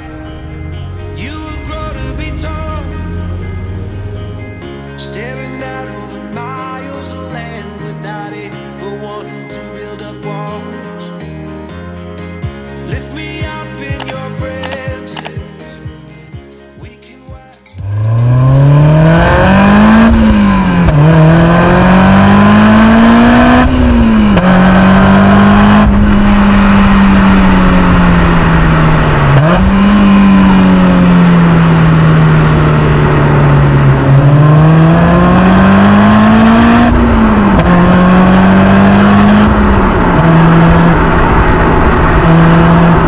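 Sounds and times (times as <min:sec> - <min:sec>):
car exhaust with gear changes: 0:00.0 - 0:04.6, 0:17.8 - 0:43.0.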